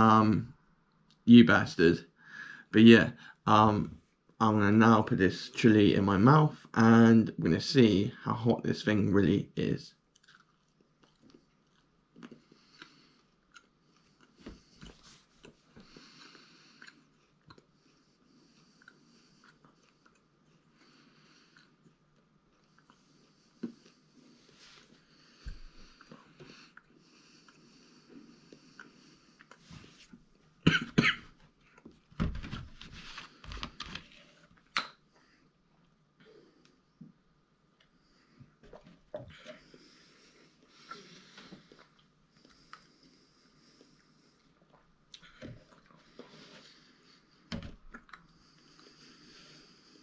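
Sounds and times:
person chewing: 10.0 - 24.2, 25.8 - 29.7, 43.7 - 46.5
man coughing hard: 30.6 - 31.3.

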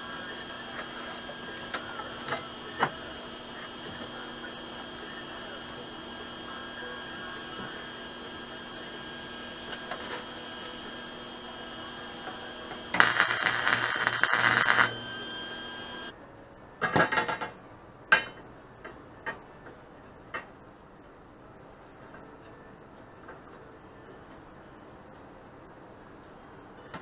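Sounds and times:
welder crackling and sizzling: 0.0 - 16.1
steady hum: 0.0 - 16.2.

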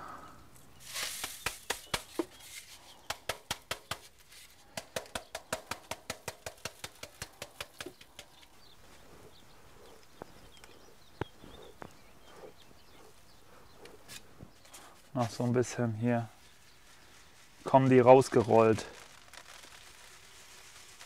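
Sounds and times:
wooden sieve being tapped: 1.0 - 2.5, 3.1 - 8.4.

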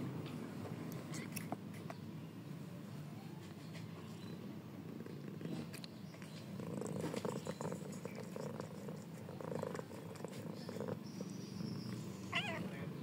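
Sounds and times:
cat purring: 4.9 - 13.0.

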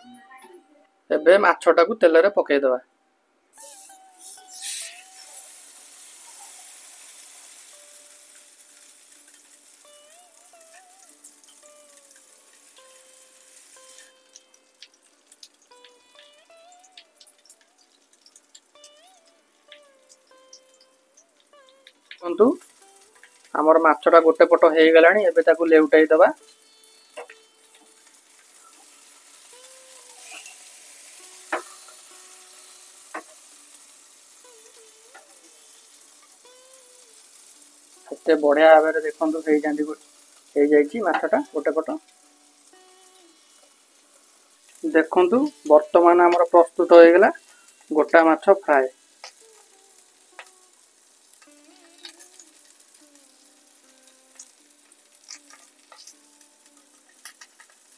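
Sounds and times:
fish sizzling in oil: 3.5 - 57.9
metal spatula clicking on pan: 54.0 - 57.9.

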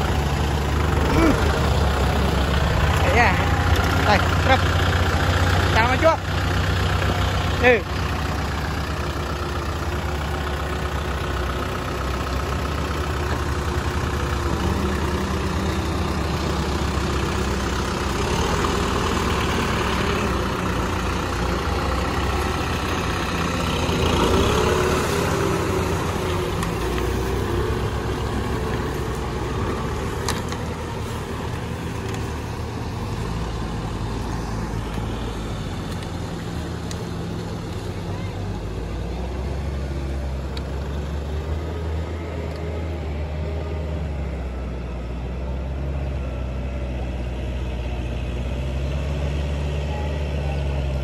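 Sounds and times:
tractor diesel engine running: 0.0 - 51.0.

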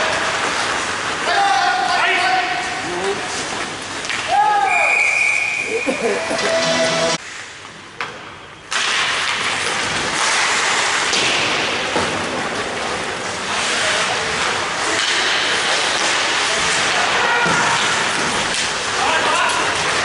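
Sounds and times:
skates scraping ice: 5.8 - 7.6, 8.7 - 20.0
hockey sticks clattering: 8.0 - 20.0.

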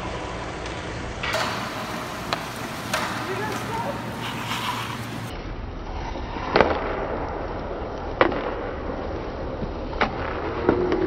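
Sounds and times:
steady rink hiss: 0.0 - 5.4
hockey sticks striking puck: 0.1 - 5.3.

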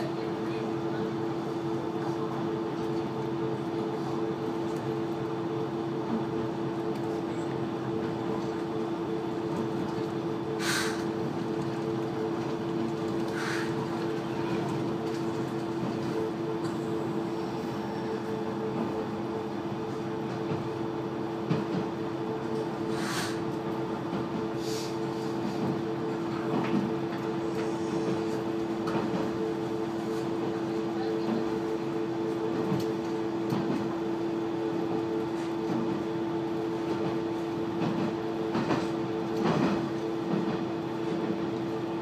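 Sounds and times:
railcar engine drone: 0.0 - 42.0
short hisses: 10.6 - 11.0, 22.9 - 23.4.

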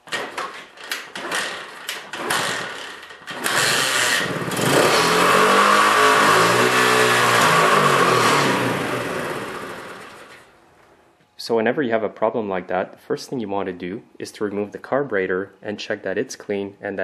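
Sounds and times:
minibike engine starting and revving: 0.1 - 10.5.

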